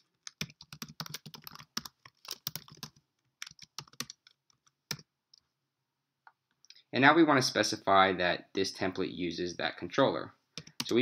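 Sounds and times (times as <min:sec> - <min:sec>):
typing on computer keyboard: 0:00.0 - 0:05.1.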